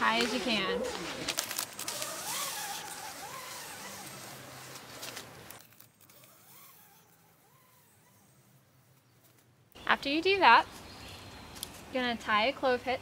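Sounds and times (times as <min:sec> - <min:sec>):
rope sliding and rustling: 0:00.0 - 0:09.5
quiet forest ambience: 0:00.0 - 0:12.9.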